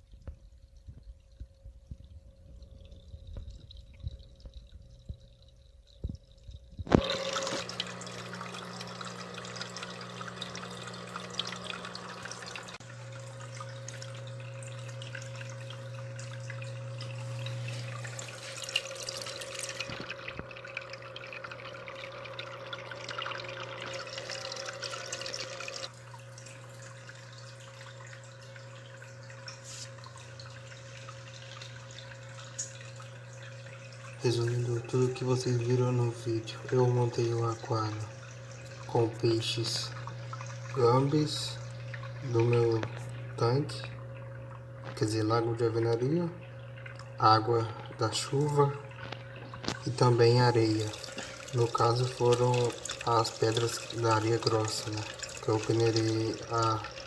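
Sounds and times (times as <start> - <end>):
aquarium pump humming: 0.0 - 57.0
water splashing and bubbling: 0.0 - 57.0.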